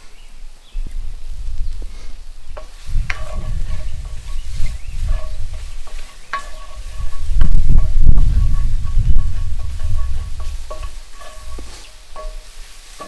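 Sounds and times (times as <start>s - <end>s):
wind rumble on microphone: 0.0s - 12.7s
utensil scraping and clinking on pan: 2.6s - 13.0s.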